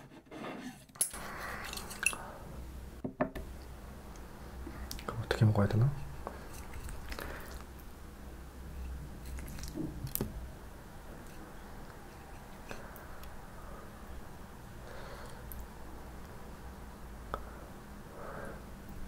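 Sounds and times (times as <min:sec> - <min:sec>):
faint room hum: 0:00.0 - 0:19.0
soft wet squishes: 0:06.0 - 0:08.0, 0:08.8 - 0:10.5.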